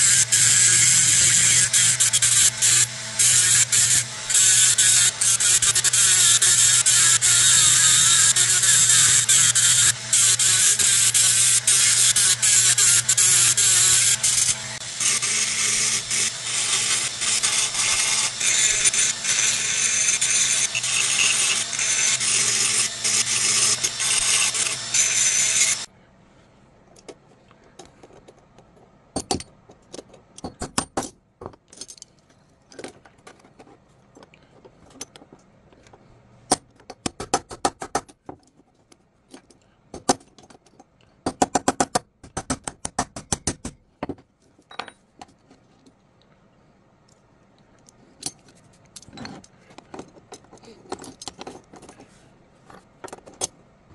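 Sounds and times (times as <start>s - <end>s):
rotary tool grinding metal: 0.0s - 25.9s
small metal parts clinking: 31.4s - 36.0s, 48.2s - 52.0s.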